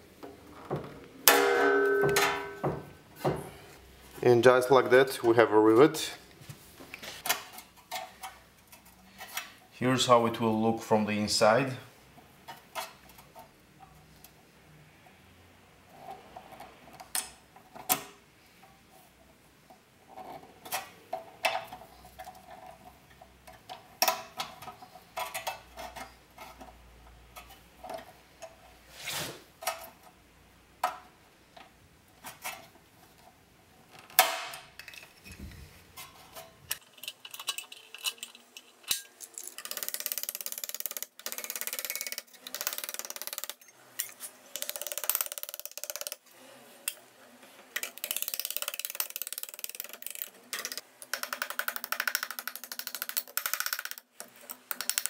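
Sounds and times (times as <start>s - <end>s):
metallic clicks and knocks: 0.6s - 3.4s, 36.3s - 46.2s, 47.8s - 55.0s.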